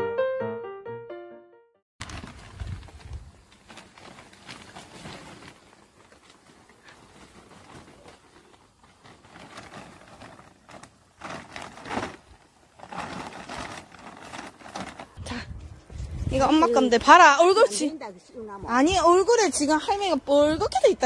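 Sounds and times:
plastic sack rustling: 2.0 - 17.8
hands rustling in garden soil: 2.0 - 19.3.

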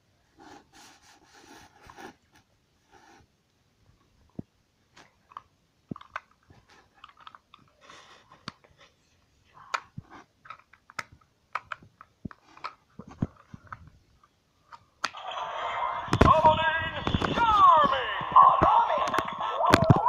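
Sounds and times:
plastic toy clicks and taps: 10.5 - 12.8.

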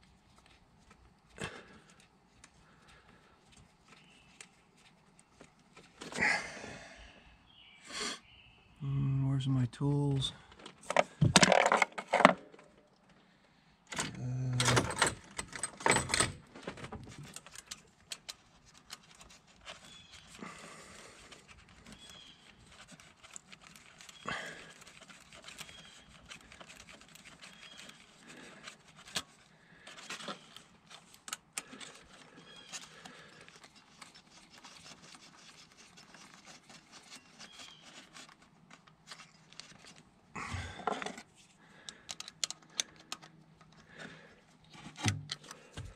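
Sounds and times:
tools and metal parts clattering: 10.6 - 12.9, 13.9 - 18.3.

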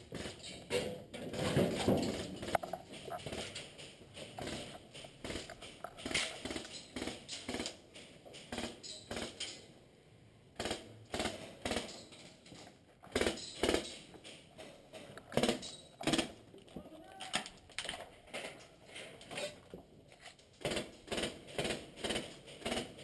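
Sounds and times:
footsteps: 0.0 - 8.7.

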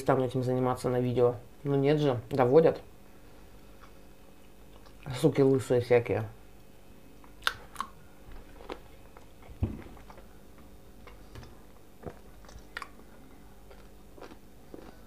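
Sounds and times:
person chewing food: 3.5 - 5.1, 7.2 - 15.0
dull knock: 9.6 - 9.9.

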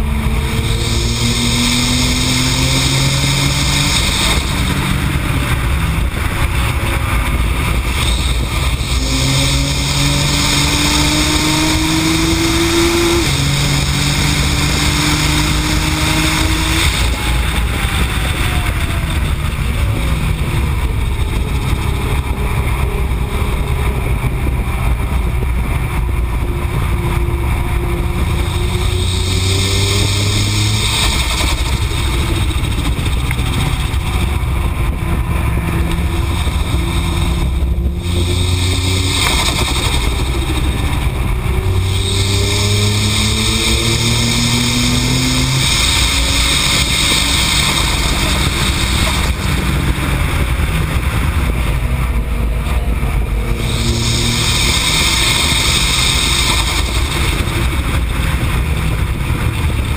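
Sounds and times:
race car engine accelerating: 0.0 - 59.9
wind and road noise: 0.0 - 59.9.

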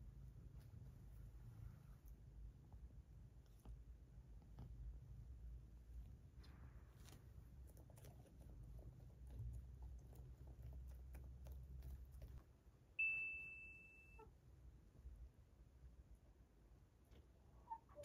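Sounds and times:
high clear ding: 13.0 - 14.2.

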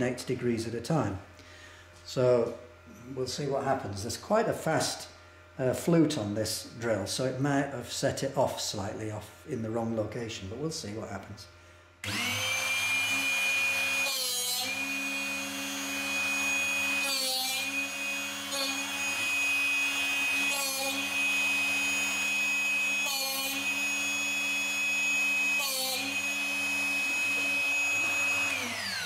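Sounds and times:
rasping grind of drill bit: 12.0 - 29.0
sharpener motor running: 12.0 - 29.0.

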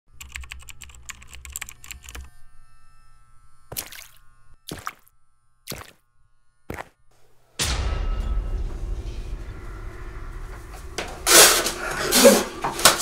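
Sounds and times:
rapid keyboard typing clicks: 0.2 - 2.3
steady low hum: 1.4 - 13.0.

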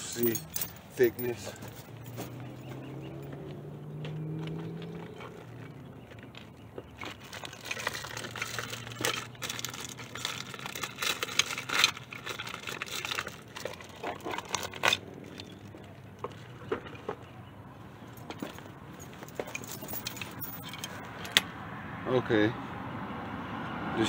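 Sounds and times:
metal parts being handled: 0.0 - 3.3, 7.0 - 17.2, 18.1 - 21.5.

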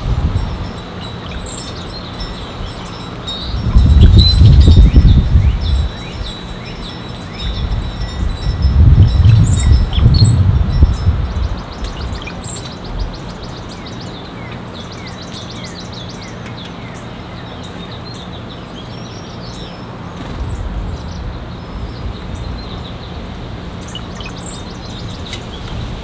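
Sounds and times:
wind rumbling on microphone: 0.0 - 14.0, 20.1 - 26.0
songbirds chirping: 0.0 - 26.0.

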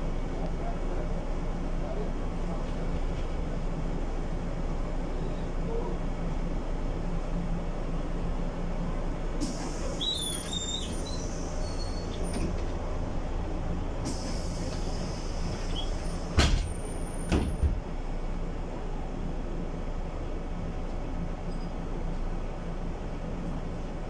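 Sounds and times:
bus engine hum: 0.0 - 24.0
short high squeaks: 9.9 - 12.4.

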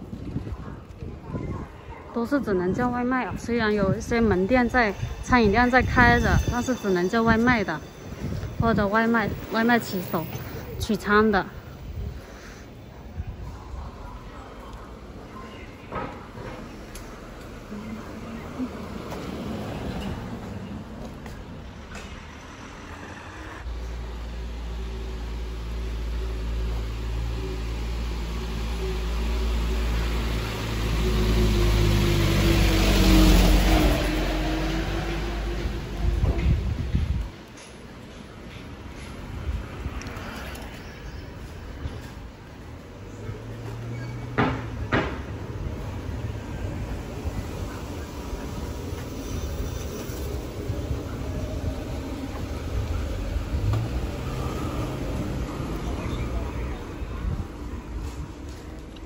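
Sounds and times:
low street rumble: 0.0 - 59.0
car driving past: 52.1 - 56.9.

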